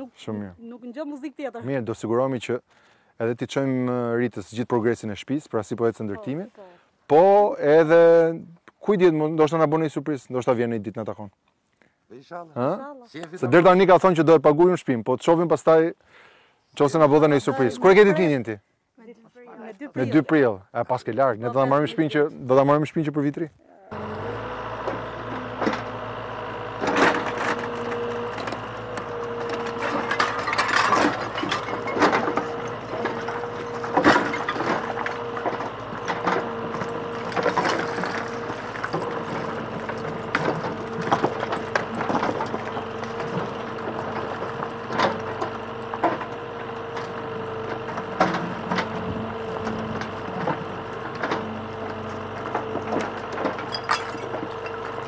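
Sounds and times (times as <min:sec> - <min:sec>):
machine hum: 0:23.9 - 0:55.0
stone and timber crashing: 0:26.6 - 0:55.0.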